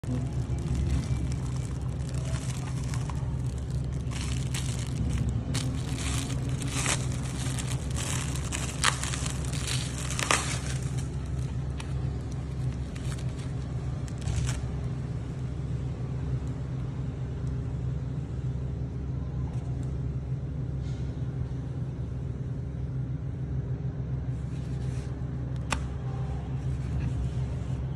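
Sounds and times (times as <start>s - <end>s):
plastic film crinkling and tearing: 0.0s - 15.0s
steady low hum: 0.0s - 27.9s.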